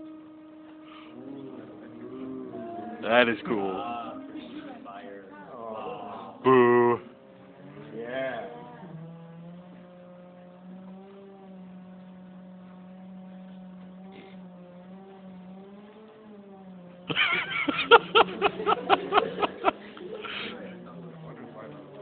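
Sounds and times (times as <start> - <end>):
loudspeaker low tone: 0.0 - 4.8, 6.4 - 7.1
rapid crackling pulses: 0.0 - 21.9.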